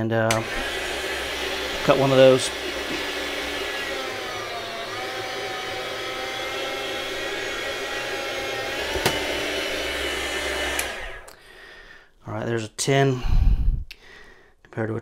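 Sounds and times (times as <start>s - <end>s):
electric meat slicer running: 0.3s - 11.4s.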